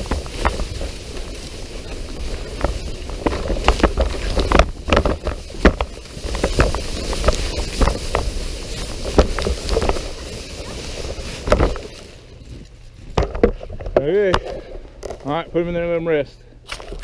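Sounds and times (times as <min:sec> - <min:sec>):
sled scraping over snow: 0:00.0 - 0:14.2
sled knocks and bumps: 0:00.0 - 0:15.9.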